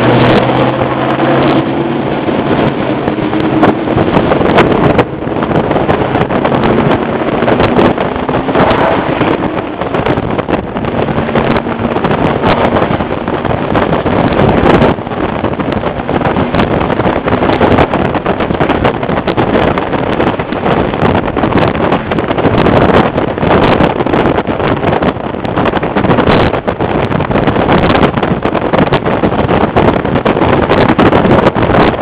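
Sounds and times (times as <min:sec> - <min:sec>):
car road and engine noise: 0:00.0 - 0:32.0
wind buffeting microphone: 0:00.0 - 0:32.0.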